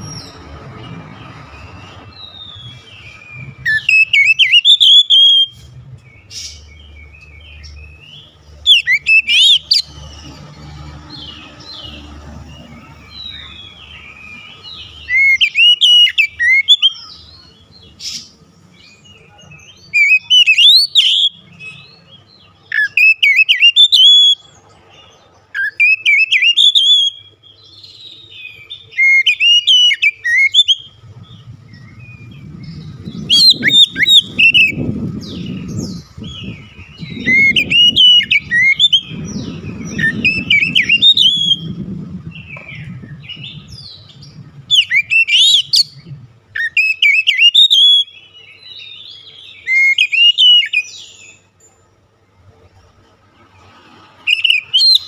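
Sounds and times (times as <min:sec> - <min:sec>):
bird singing whistles: 0:02.1 - 0:09.9, 0:13.2 - 0:17.2, 0:19.8 - 0:22.0, 0:22.7 - 0:24.5, 0:25.6 - 0:51.4, 0:54.3 - 0:55.0.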